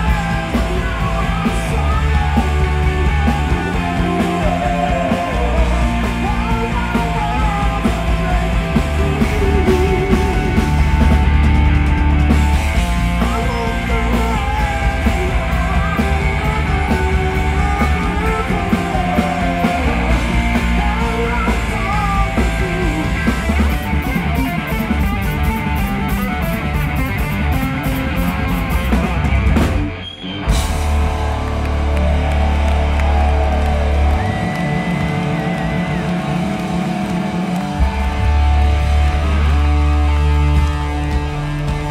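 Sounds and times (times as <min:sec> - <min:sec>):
distorted electric guitar: 0:00.0 - 0:41.9
drum kit: 0:00.0 - 0:41.9
electric bass: 0:00.0 - 0:41.9.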